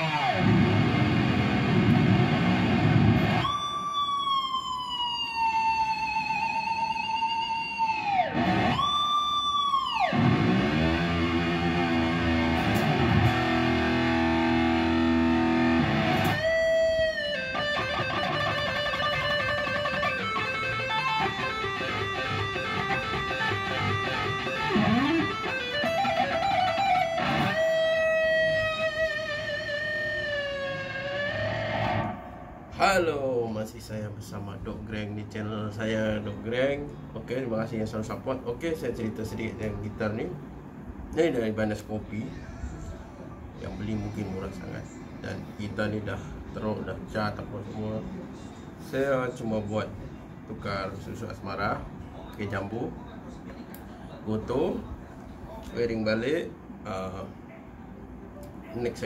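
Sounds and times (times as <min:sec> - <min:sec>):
electric guitar lead: 0:00.0 - 0:32.8.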